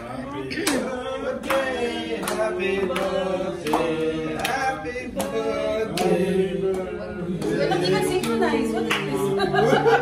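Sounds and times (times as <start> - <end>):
group singing a birthday song: 0.0 - 10.0
hands clapping in time: 0.5 - 7.6.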